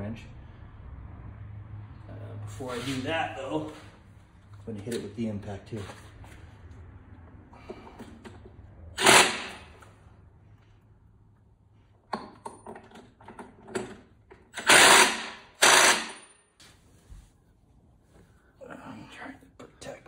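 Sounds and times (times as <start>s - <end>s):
impact wrench hammering: 9.0s - 9.8s, 14.5s - 16.4s.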